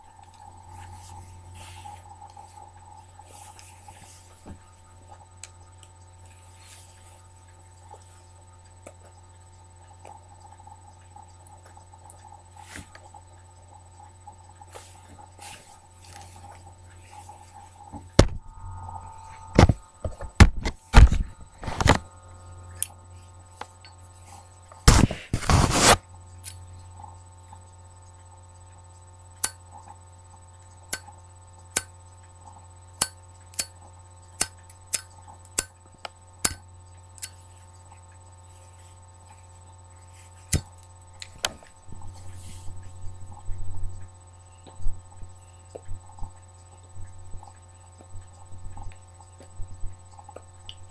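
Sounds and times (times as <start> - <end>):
steady electrical hum: 0.0 - 50.9.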